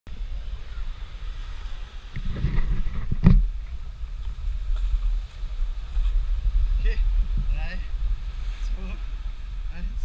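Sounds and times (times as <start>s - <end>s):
low rumbling wind: 0.1s - 10.0s
microphone handling noise: 1.4s - 8.8s.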